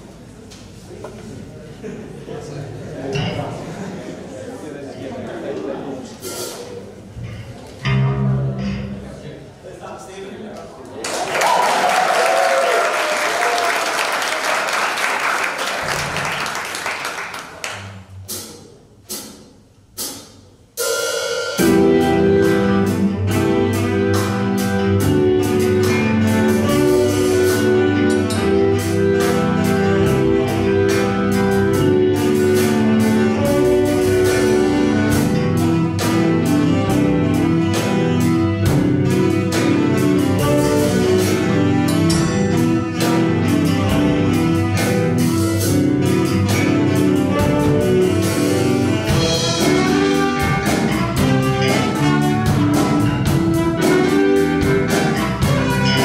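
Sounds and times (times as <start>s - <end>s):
jazz band playing: 5.9s - 10.4s, 11.4s - 56.0s
audience applause: 11.0s - 17.9s.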